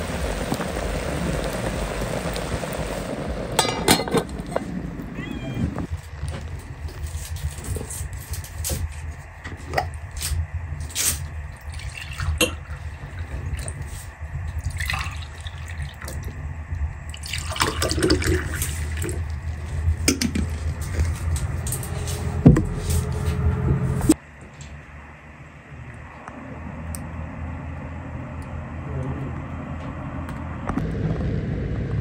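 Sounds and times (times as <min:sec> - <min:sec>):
low steady rumble: 0:00.0 - 0:32.0
liquid pouring into glasses: 0:14.6 - 0:16.1, 0:17.2 - 0:19.3.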